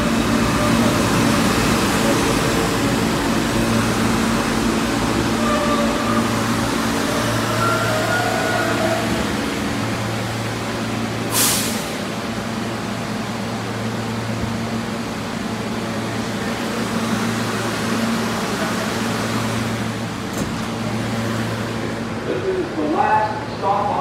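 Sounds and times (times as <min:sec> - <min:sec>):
subway train humming: 0:00.0 - 0:24.0
air release hiss: 0:11.3 - 0:12.0.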